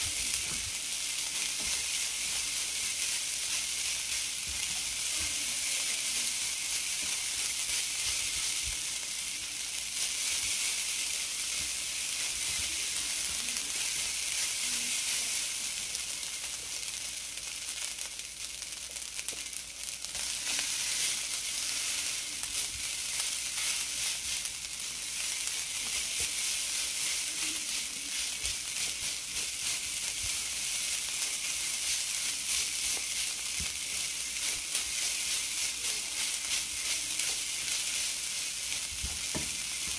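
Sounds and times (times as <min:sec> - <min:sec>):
rice sizzling in a skillet: 0:00.0 - 0:39.9
spatula scraping and tapping: 0:01.3 - 0:05.4, 0:20.2 - 0:39.9.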